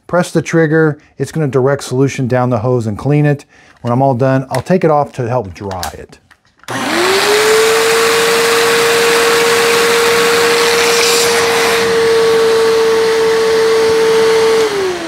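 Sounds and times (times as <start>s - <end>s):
carpet cleaner motor whining: 6.7s - 15.0s
suction air rushing: 6.7s - 15.0s.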